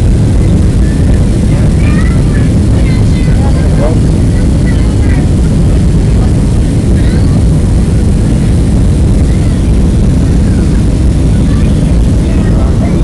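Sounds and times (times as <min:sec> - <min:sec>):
jet engines rumbling: 0:00.0 - 0:13.0
rushing airflow: 0:00.0 - 0:13.0.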